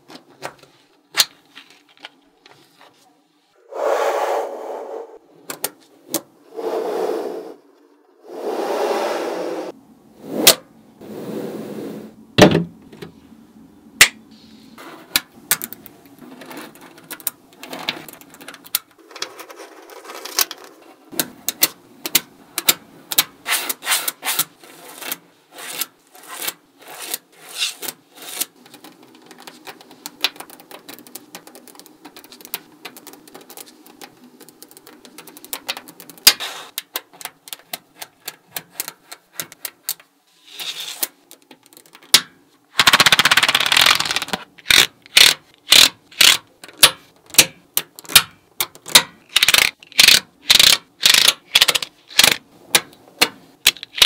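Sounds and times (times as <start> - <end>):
magnetic balls clicking: 28.6 - 38.4, 41.2 - 52.4.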